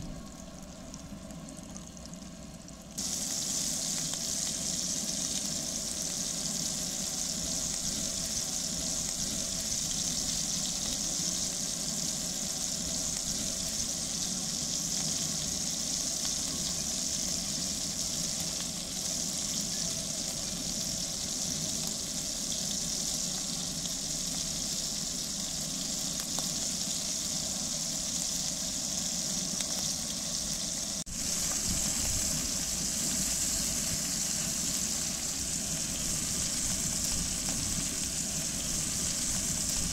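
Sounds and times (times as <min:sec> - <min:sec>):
meat sizzling in a pan: 0:02.9 - 0:39.9.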